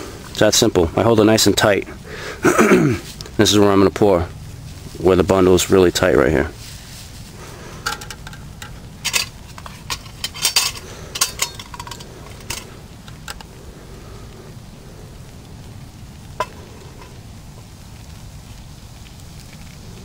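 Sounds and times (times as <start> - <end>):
metal cookware clinking: 7.8 - 13.4.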